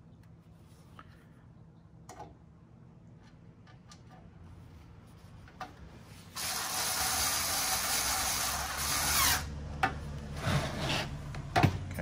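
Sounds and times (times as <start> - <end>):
electric screwdriver whining: 6.4 - 9.5.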